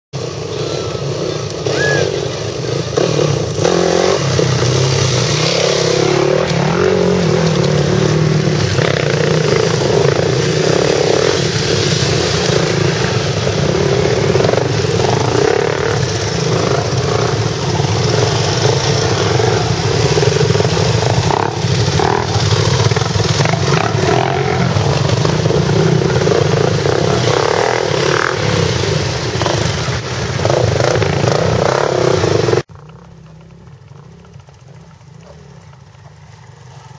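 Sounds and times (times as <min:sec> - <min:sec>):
dirt bike engines running: 0:00.2 - 0:36.9.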